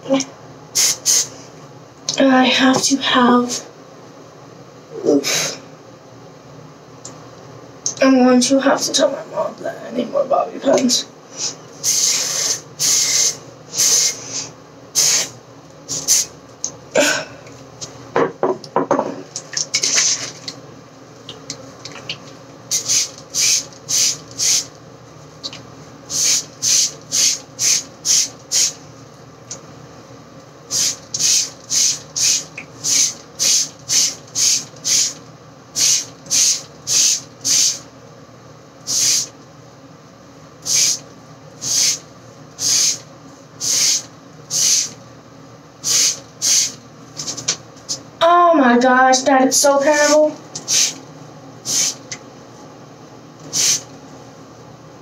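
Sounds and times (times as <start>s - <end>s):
spray bottle spritzes: 0.8s - 1.3s, 11.8s - 14.2s, 15.0s - 15.3s, 15.9s - 16.3s, 22.7s - 24.7s, 26.1s - 28.8s, 30.7s - 35.2s, 35.8s - 37.8s, 38.9s - 39.3s, 40.7s - 41.0s, 41.6s - 42.0s, 42.6s - 43.0s, 43.6s - 45.0s, 45.8s - 47.3s, 50.0s - 51.0s, 51.7s - 52.0s, 53.5s - 53.8s.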